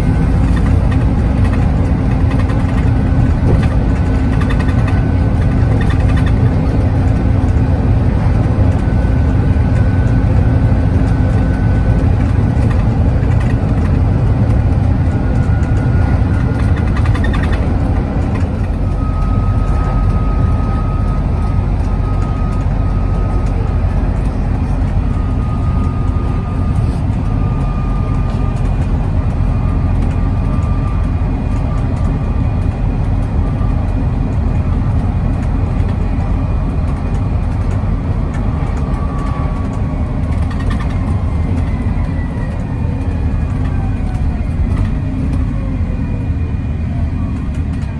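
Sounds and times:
bus diesel engine rumble: 0.0 - 47.9
road noise: 0.0 - 47.9
faint whine: 2.8 - 32.5.

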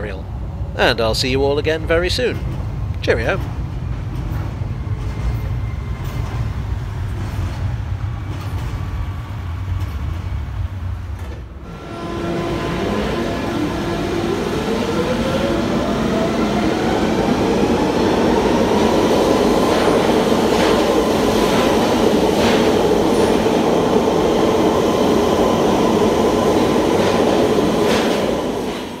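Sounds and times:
wheel and rail noise: 2.2 - 16.1
train motor whine: 8.1 - 16.6.

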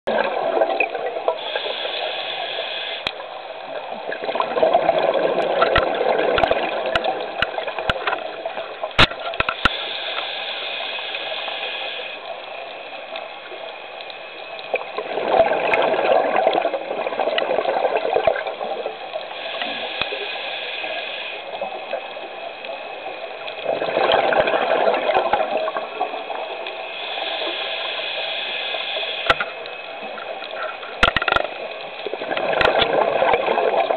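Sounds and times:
diver inhaling through regulator: 1.4 - 3.1, 9.6 - 12.3, 19.3 - 21.5, 26.8 - 29.5.

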